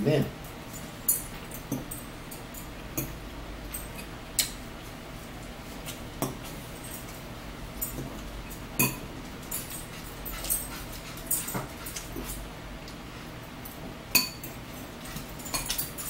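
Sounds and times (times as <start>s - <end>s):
low steady hum: 0.0s - 16.0s
metal forks clinking in bowls: 0.7s - 4.6s, 6.8s - 12.4s, 14.1s - 16.0s.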